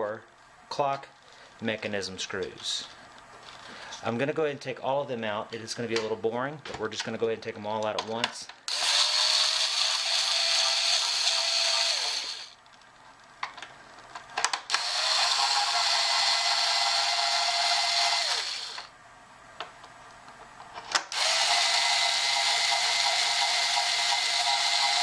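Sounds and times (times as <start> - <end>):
electric screwdriver motor: 8.7 - 12.6, 14.7 - 18.9, 21.1 - 25.0.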